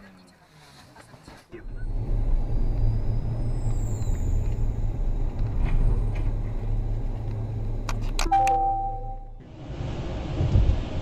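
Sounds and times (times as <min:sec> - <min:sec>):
car engine and tyres rumbling: 0:00.0 - 0:11.0
held tone: 0:08.2 - 0:09.4.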